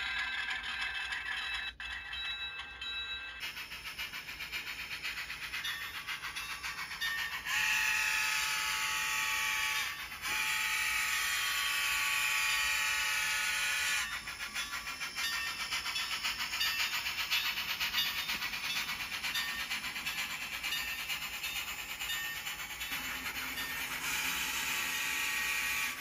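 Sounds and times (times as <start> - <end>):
rapid clicking of running train: 0.0 - 26.0
steam locomotive whistle: 7.5 - 14.1, 24.0 - 26.0.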